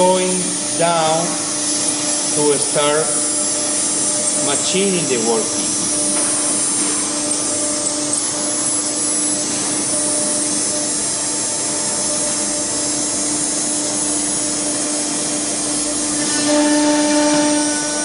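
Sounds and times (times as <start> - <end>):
router spindle hissing: 0.0 - 10.9.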